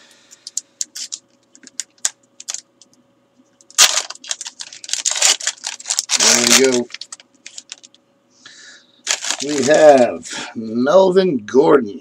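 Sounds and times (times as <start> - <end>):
foil wrapper crackling and tearing: 0.9 - 2.6, 3.6 - 8.0, 9.1 - 10.1.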